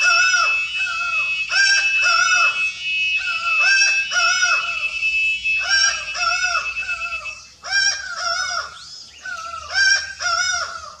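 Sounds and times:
falcon two-note calls: 0.0s - 10.8s.

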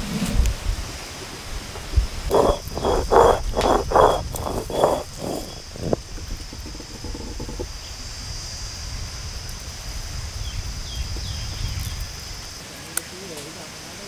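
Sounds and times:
high insect drone: 0.9s - 14.0s
stone grinding on stone: 2.3s - 7.7s.

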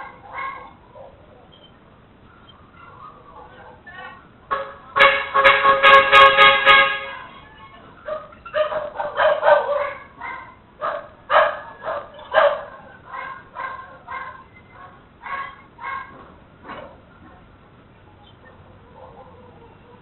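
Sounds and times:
dog barking: 0.0s - 1.4s, 2.8s - 4.0s, 8.0s - 17.0s, 18.5s - 20.0s
vehicle horn pulses: 4.5s - 7.5s.

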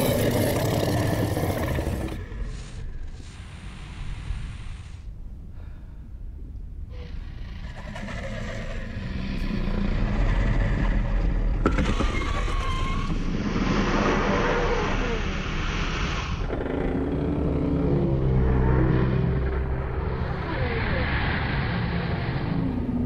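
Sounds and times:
deep rumbling breathing: 0.6s - 11.6s.

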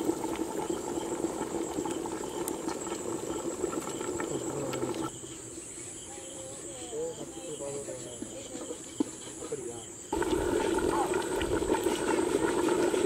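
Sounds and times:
pot bubbling: 0.0s - 5.2s, 10.1s - 13.0s.

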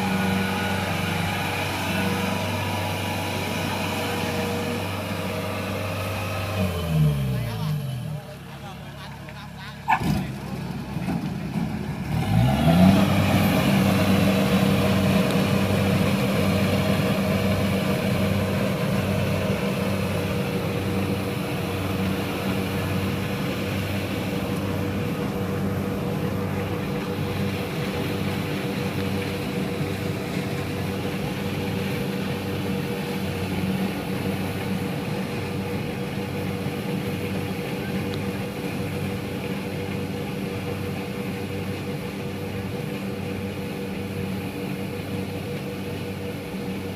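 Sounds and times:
combine harvester diesel engine: 0.0s - 46.9s.

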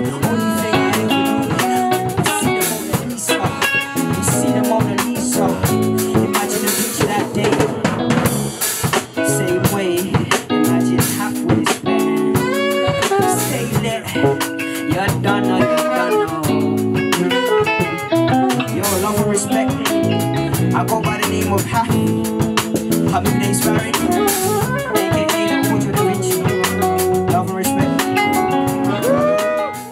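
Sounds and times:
live rock band playing: 0.0s - 29.9s.

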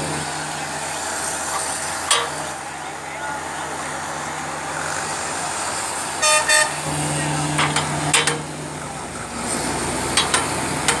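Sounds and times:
paving machine humming: 0.0s - 11.0s
sharp metallic clanks: 2.1s - 2.4s
short horn toots: 6.2s - 6.9s.

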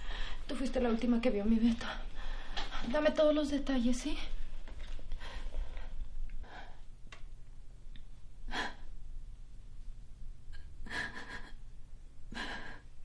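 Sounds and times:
low room hum: 0.0s - 13.0s
woman breathing heavily and gasping: 5.1s - 6.9s, 8.4s - 9.0s, 12.3s - 13.0s.

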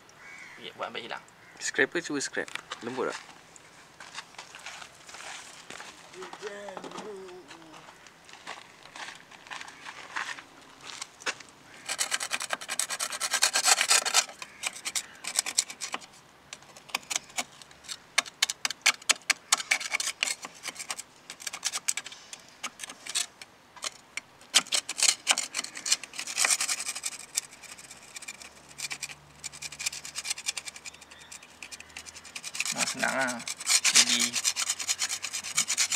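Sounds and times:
scraper blade rasping on metal: 11.8s - 17.5s, 18.2s - 35.9s.

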